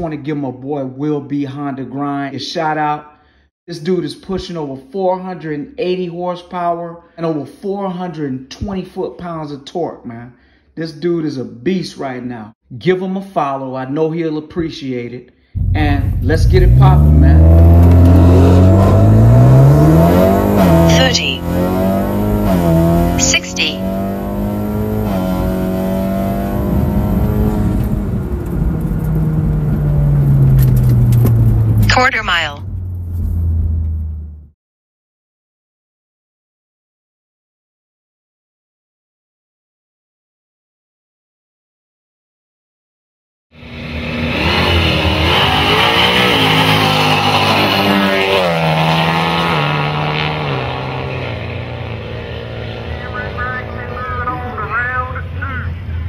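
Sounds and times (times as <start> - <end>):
car engine at full throttle: 15.6 - 34.4, 43.6 - 55.2.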